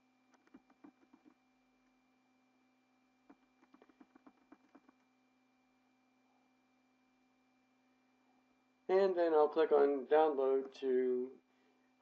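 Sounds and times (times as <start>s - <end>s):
faint steady hum: 0.0s - 12.0s
computer mouse clicks: 0.3s - 1.4s, 3.3s - 5.1s.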